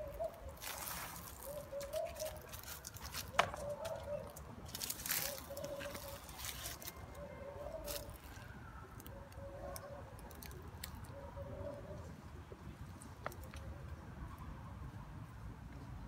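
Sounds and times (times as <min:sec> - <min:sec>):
dry leaves crunching: 0:00.0 - 0:08.6.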